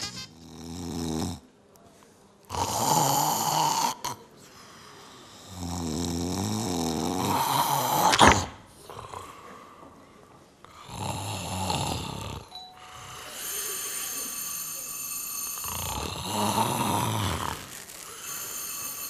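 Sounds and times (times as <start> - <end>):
person snoring: 2.5 - 4.2, 5.4 - 9.2, 10.8 - 12.5, 13.1 - 19.0.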